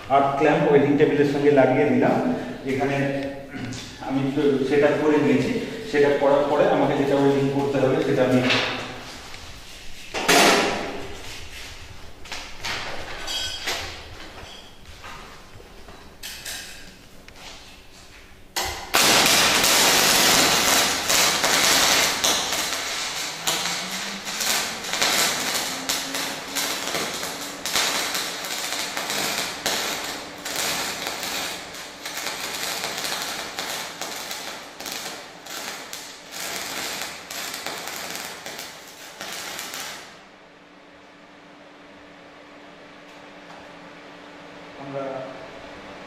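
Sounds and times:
welding arc crackling: 15.5s - 40.3s.

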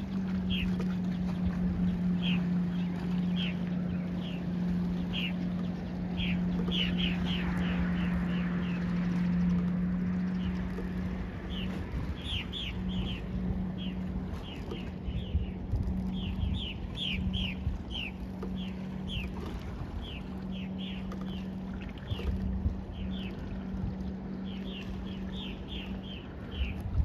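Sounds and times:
low hum: 0.0s - 27.0s
water: 0.0s - 27.0s
wind: 0.0s - 27.0s
small birds chirping: 0.4s - 9.6s, 11.4s - 19.4s, 20.0s - 21.5s, 24.4s - 26.8s.

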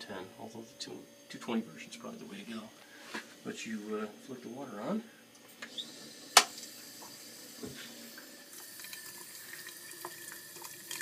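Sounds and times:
water running into steel sink: 6.3s - 11.0s.

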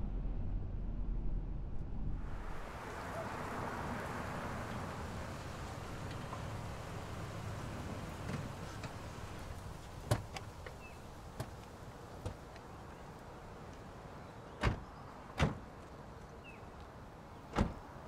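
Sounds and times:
car doors slamming shut: 14.6s - 15.6s, 17.5s - 17.8s.

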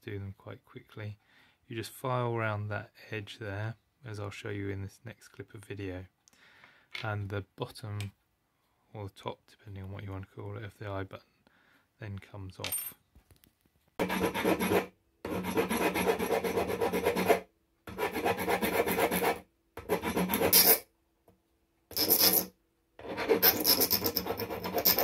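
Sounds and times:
hand file rasping on metal: 14.0s - 20.8s, 21.9s - 25.0s.

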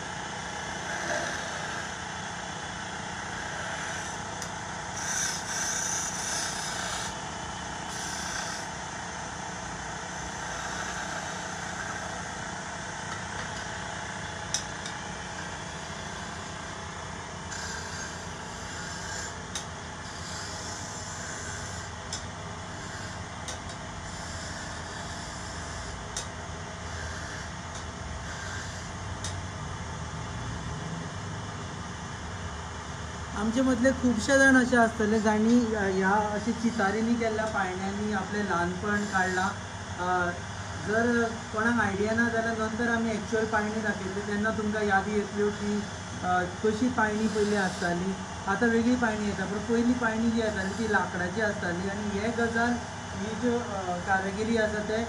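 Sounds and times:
wood lathe running: 0.0s - 29.2s, 33.3s - 55.0s
hiss of wood cutting: 7.9s - 8.7s, 10.2s - 12.2s, 47.2s - 47.9s.

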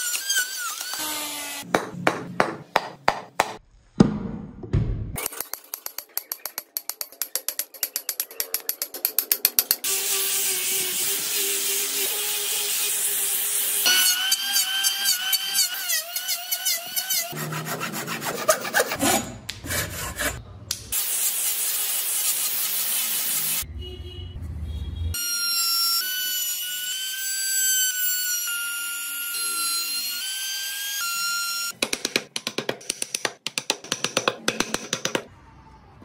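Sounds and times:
chisel knocking on wood: 1.7s - 3.6s, 31.8s - 35.3s.

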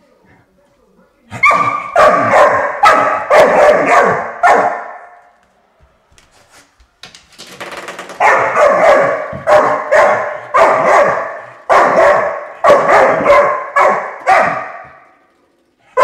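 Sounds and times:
spring door stopper twanging: 7.0s - 16.0s.

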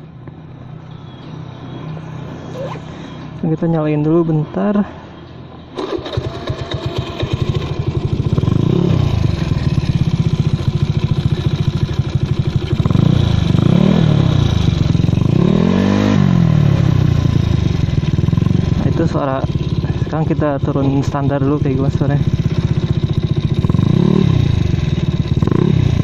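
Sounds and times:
scooter throttle blips: 5.6s - 26.0s
scooter engine starting and idling: 5.7s - 26.0s.

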